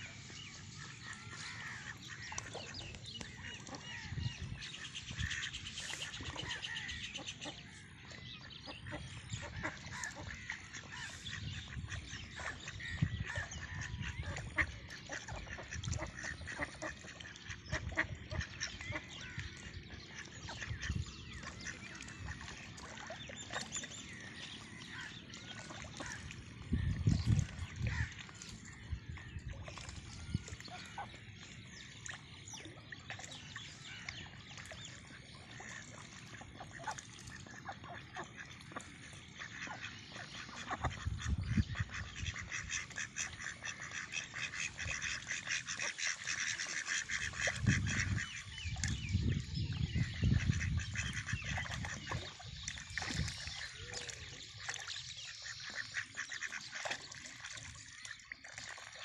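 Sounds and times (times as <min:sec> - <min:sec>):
ducks calling: 0:00.0 - 0:29.4, 0:33.2 - 0:57.6
ducks crackling chatter: 0:35.5 - 0:48.5, 0:50.0 - 0:52.3, 0:55.3 - 0:57.6.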